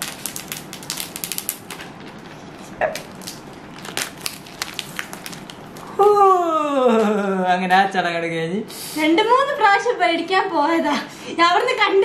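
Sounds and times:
plastic wrap crackling: 0.0s - 6.4s.

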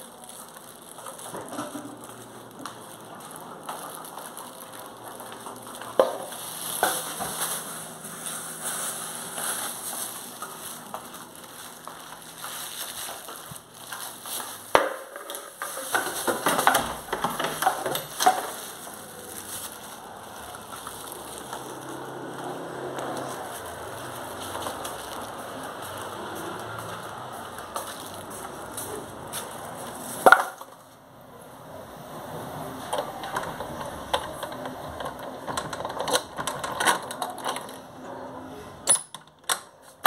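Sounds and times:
plastic bags crinkling: 0.0s - 30.8s.

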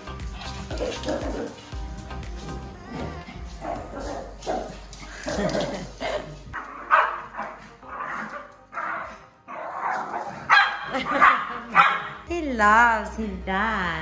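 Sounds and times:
small dog barking: 6.9s - 7.6s, 9.8s - 12.2s.

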